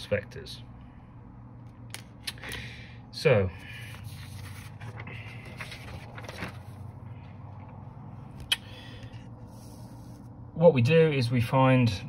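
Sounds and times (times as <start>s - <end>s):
low room hum: 0.0s - 12.0s
paper rustling: 3.7s - 7.3s.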